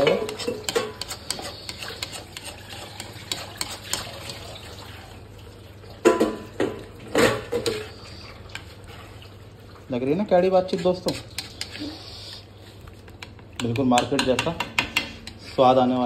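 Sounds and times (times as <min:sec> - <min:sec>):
metal spatula scraping a pan: 0:00.0 - 0:04.5, 0:07.2 - 0:08.7, 0:10.6 - 0:12.4.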